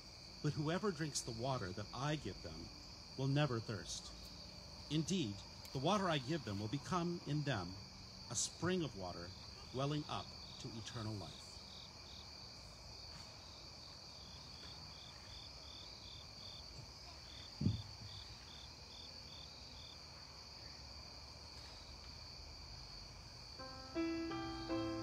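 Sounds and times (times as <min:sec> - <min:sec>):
crickets chirping: 0:00.0 - 0:25.0
thump: 0:17.6 - 0:18.2
piano playing hymn: 0:23.6 - 0:25.0.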